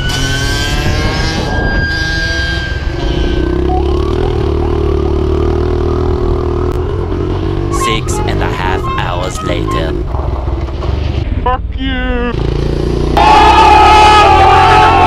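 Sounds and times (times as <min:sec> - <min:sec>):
dirt bike engine at high revs: 0:00.0 - 0:07.8, 0:12.3 - 0:15.0
siren wailing: 0:00.0 - 0:10.1, 0:13.2 - 0:15.0.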